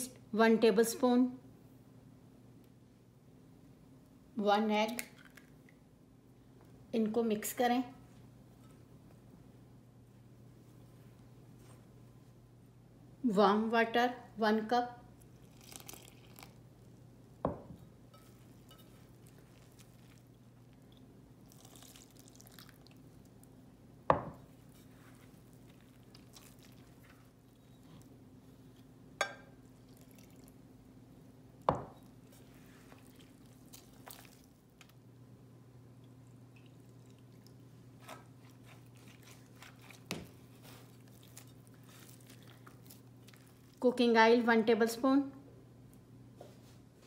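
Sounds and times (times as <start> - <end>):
faint steady hum: 0.0 - 47.0
dough being stirred: 18.1 - 23.0, 24.4 - 30.6, 36.6 - 44.1.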